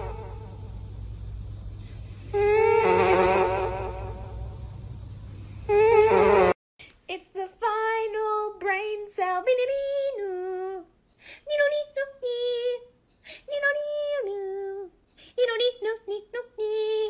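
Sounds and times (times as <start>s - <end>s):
loud wavering hum: 0.0s - 6.6s.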